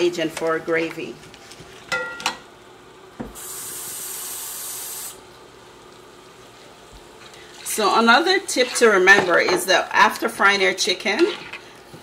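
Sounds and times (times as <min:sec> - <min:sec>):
steady high hiss: 0:03.2 - 0:06.4.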